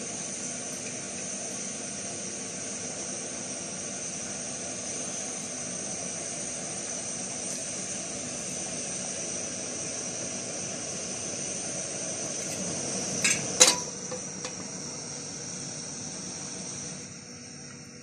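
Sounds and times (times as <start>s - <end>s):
gas burner hissing: 0.0s - 18.0s
frying pan clanking on burner: 13.2s - 14.6s.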